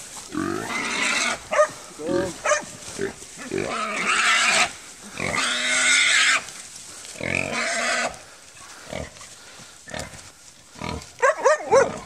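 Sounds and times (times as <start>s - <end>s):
shuffling: 0.0s - 5.2s, 6.4s - 7.5s.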